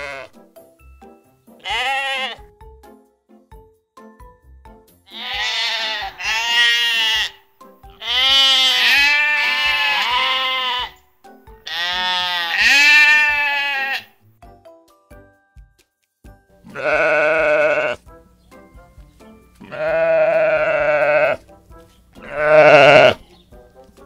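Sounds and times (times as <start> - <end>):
sheep bleating: 0.0 - 0.4, 1.6 - 2.5, 5.1 - 11.0, 11.6 - 14.2, 16.7 - 18.0, 19.6 - 21.5, 22.2 - 23.4.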